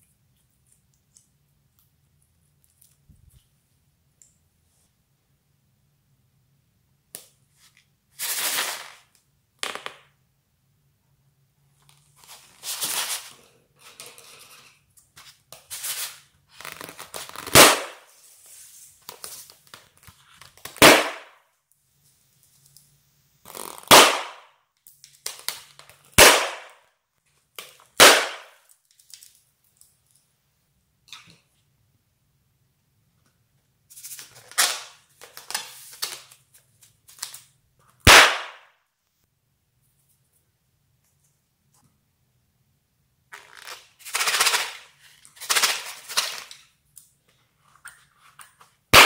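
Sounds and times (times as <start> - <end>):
balloons popping: 16.6 - 18.1, 20.6 - 21.4, 23.4 - 24.5, 26.1 - 26.8, 28.0 - 28.6, 38.0 - 38.7.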